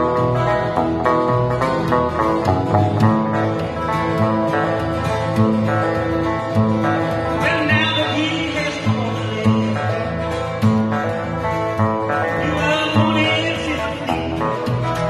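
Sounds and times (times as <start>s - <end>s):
country band guitar: 0.0s - 15.0s
moving low bass line: 0.1s - 4.6s.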